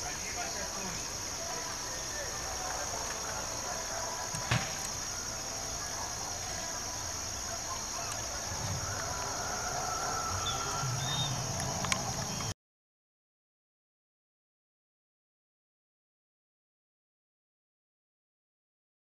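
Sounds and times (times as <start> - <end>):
insect chorus drone: 0.0 - 12.6.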